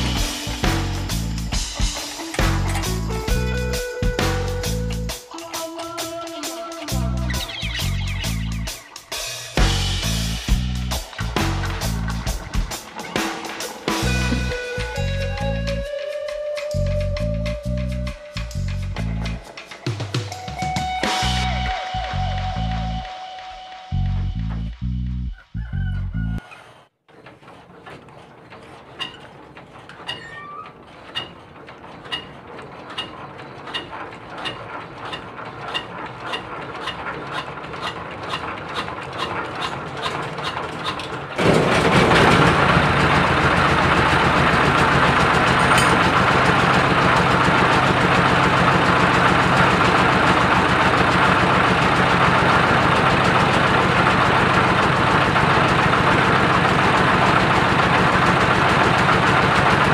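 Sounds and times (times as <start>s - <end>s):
diesel engine running loudly: 9.6s - 15.9s, 31.1s - 59.9s
hand-cranked engine ticking: 16.8s - 20.4s, 27.1s - 59.9s.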